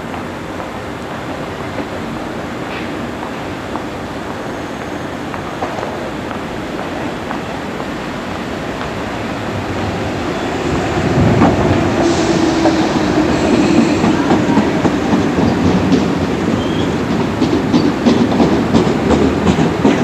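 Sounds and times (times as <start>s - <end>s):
electric train traction hum: 0.0s - 20.0s
wheels clacking over rail joints: 11.2s - 20.0s
high wheel squeal: 16.5s - 17.0s.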